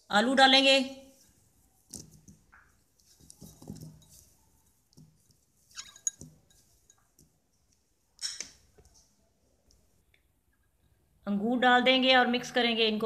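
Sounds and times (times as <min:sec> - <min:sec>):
light clinks against dish: 0:05.8 - 0:07.1.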